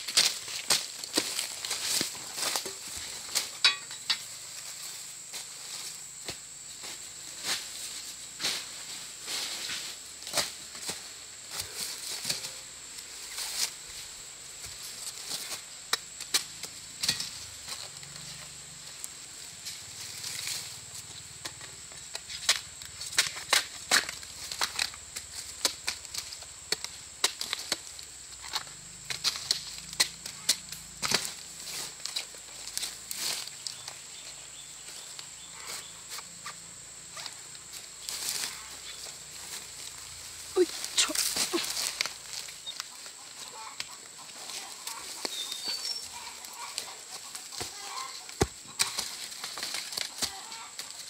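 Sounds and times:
high insect drone: 0:00.0 - 0:51.0
sharp knocks and cracks: 0:21.4 - 0:31.4
plant material cracking and rustling: 0:38.0 - 0:51.0.

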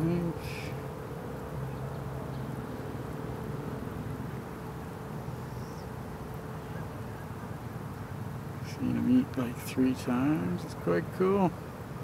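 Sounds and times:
low mechanical hum with tone: 0:00.0 - 0:12.0.

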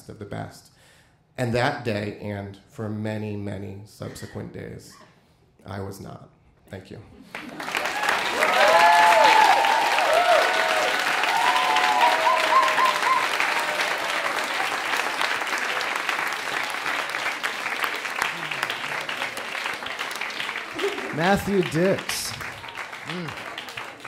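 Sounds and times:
audience applauding: 0:07.3 - 0:24.0
people whooping and cheering: 0:07.4 - 0:16.1, 0:18.3 - 0:24.0.

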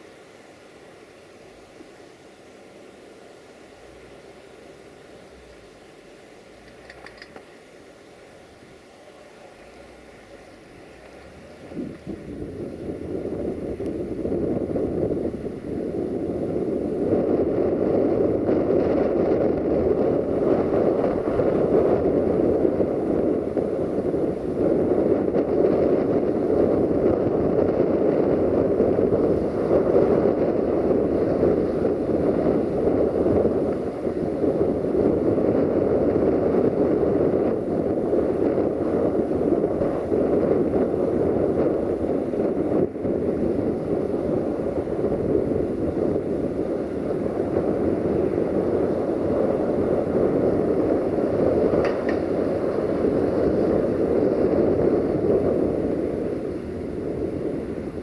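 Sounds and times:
train wheels rumbling on rails: 0:16.2 - 0:56.7.

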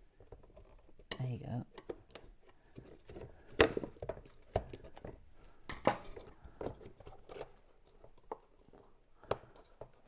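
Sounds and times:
plastic knocks and clicks: 0:00.1 - 0:10.0.

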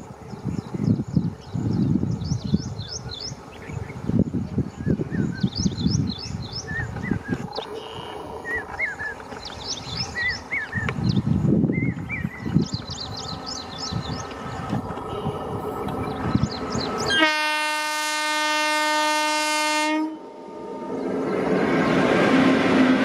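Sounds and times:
small birds chirping: 0:00.3 - 0:17.2.

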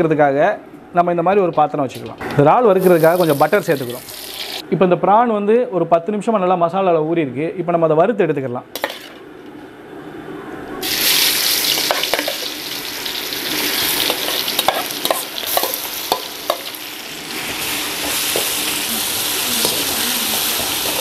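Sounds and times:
prawns sizzling in butter: 0:02.8 - 0:04.6, 0:10.8 - 0:21.0.

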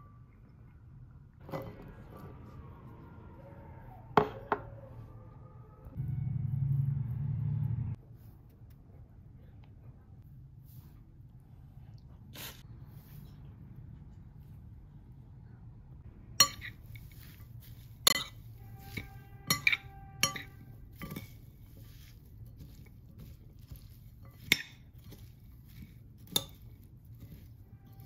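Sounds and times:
metal spoon clinking on ceramic bowl: 0:16.4 - 0:17.4, 0:18.1 - 0:28.0.

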